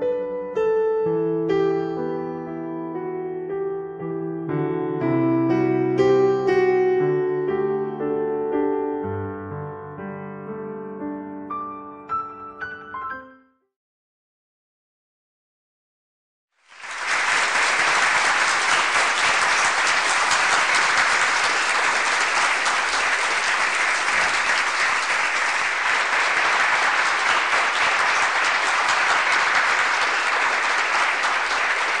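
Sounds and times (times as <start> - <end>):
audience applauding: 16.7 - 32.0.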